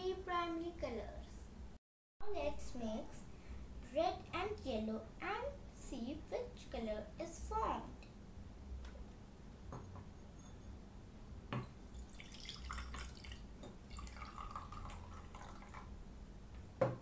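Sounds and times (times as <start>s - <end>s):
water pouring into a cup: 11.9s - 15.9s.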